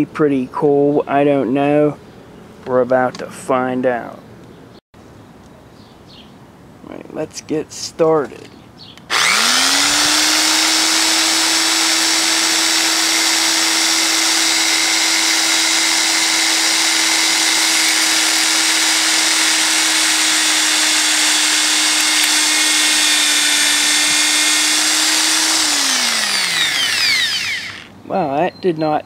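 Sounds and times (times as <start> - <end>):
electric drill whining: 9.1 - 28.0.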